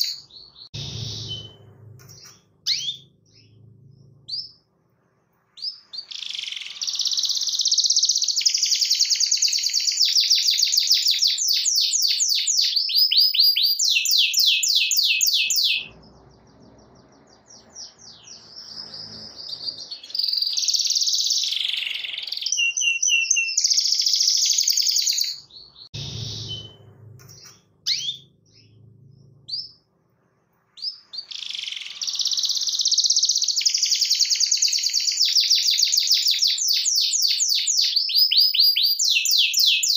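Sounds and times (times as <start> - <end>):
canary singing trills: 0.0 - 4.7, 5.6 - 29.9, 30.8 - 39.9.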